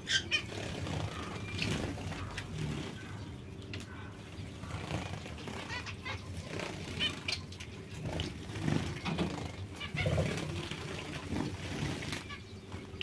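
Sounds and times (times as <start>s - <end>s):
finches calling: 0.0s - 8.1s
deeper bird calls: 0.0s - 12.6s.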